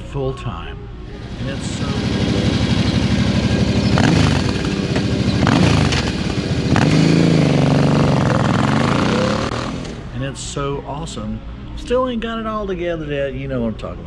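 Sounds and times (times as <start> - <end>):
motorcycle engine revving: 1.1 - 10.1.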